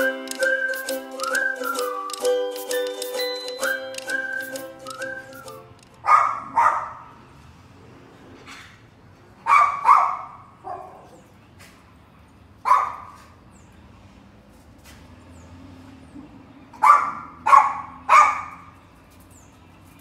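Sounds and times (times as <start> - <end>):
dog barking: 6.0 - 7.1, 9.4 - 11.2, 12.6 - 13.2, 16.8 - 18.6.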